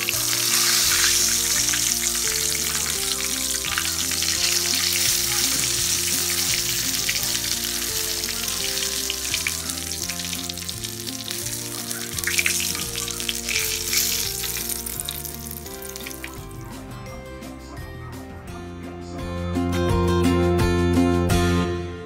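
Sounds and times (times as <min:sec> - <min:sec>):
chicken deep-frying in oil: 0:00.0 - 0:16.8
soft background music: 0:00.0 - 0:22.0.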